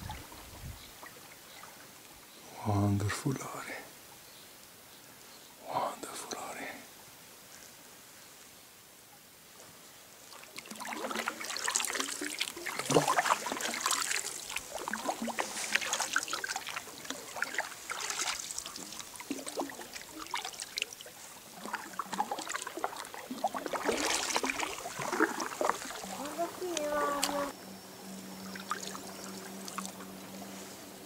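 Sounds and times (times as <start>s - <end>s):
kayak paddle splashing: 10.2s - 27.6s, 28.4s - 31.0s
water trickling off paddle: 10.2s - 27.6s, 28.4s - 31.0s.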